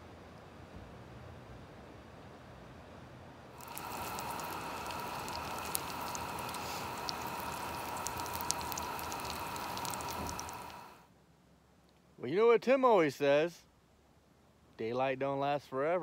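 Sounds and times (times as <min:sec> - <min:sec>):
crackling pops: 0:03.6 - 0:11.0
meat sizzling in hot oil: 0:03.6 - 0:11.0.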